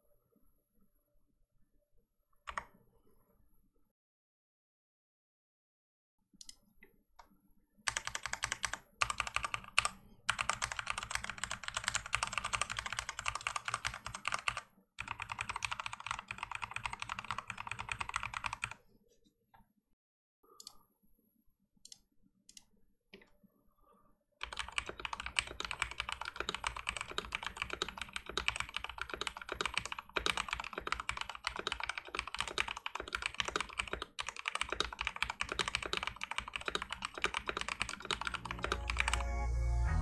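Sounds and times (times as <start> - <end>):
fast typing on mechanical keyboard: 7.9 - 18.8, 24.4 - 39.2.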